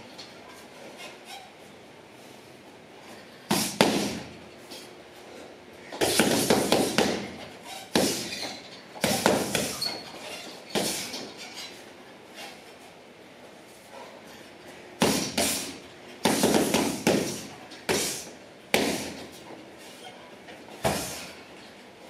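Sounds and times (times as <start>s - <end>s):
punches hitting heavy bag: 3.5s - 4.4s, 6.0s - 8.4s, 9.0s - 9.8s, 15.0s - 19.2s.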